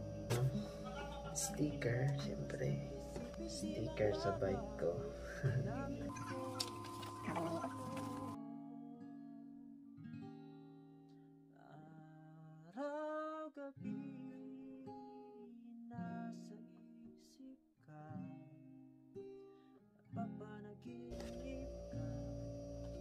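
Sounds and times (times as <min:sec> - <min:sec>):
person singing: 0:00.0 - 0:09.6, 0:11.6 - 0:18.4
acoustic guitar: 0:00.0 - 0:23.0.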